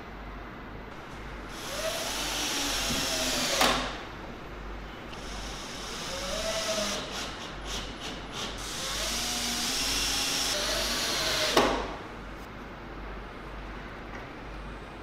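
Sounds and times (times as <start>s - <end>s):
power tool running: 1.5s - 4.0s, 5.1s - 11.8s.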